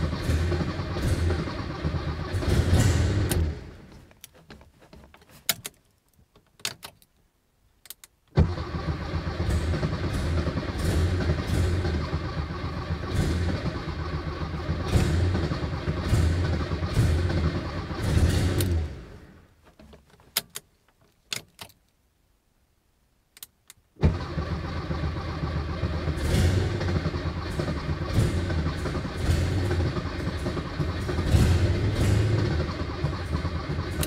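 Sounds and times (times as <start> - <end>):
car engine running loud: 0.0 - 3.8, 8.4 - 19.2, 24.0 - 34.0.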